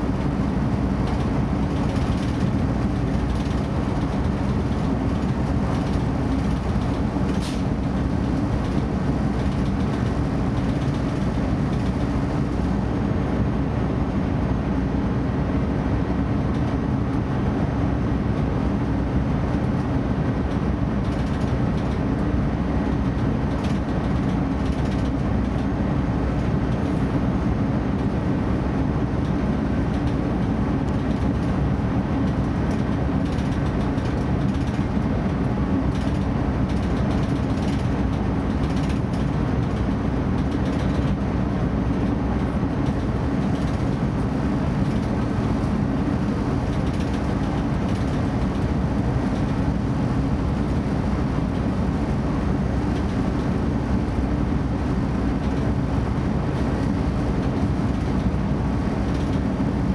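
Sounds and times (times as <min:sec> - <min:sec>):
train running noise: 0:00.0 - 0:59.9.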